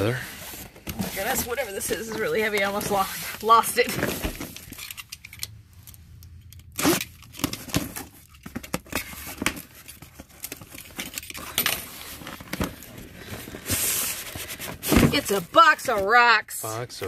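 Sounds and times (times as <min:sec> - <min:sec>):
cardboard scraping and rustling: 0:00.0 - 0:04.8, 0:11.8 - 0:16.3
utility knife slitting tape: 0:06.6 - 0:07.6
tape tearing: 0:06.6 - 0:15.5.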